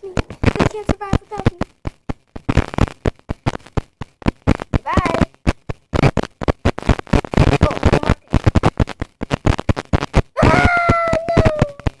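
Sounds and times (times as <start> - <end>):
boy making choppy vocal sounds: 4.8 - 5.3, 10.3 - 12.0
boy screaming: 10.4 - 11.9.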